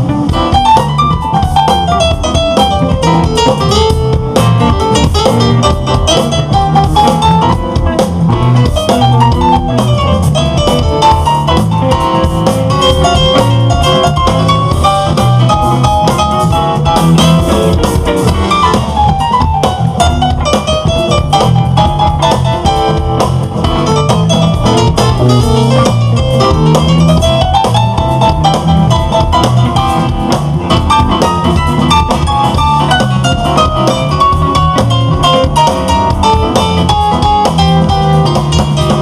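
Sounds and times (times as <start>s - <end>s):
guitar lead bending in pitch: 0.0s - 39.0s
jazz-rock fusion band playing: 0.0s - 39.0s.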